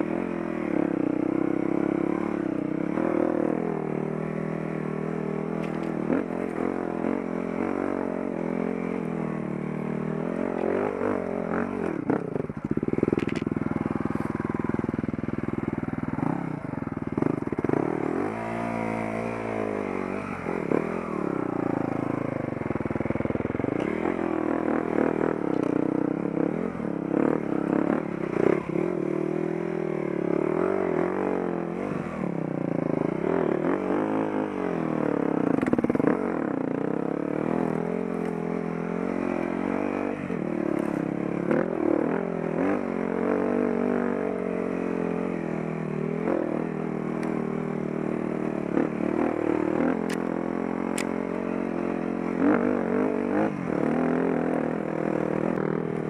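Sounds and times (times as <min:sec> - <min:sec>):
dirt bike engine revving: 0:00.0 - 0:56.0
knocks and clatter from bike: 0:12.7 - 0:13.6.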